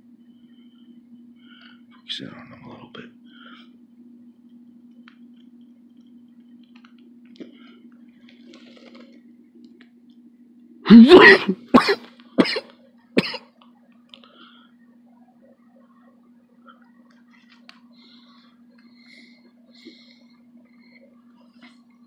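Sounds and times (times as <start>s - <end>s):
man coughing: 10.9s - 13.4s.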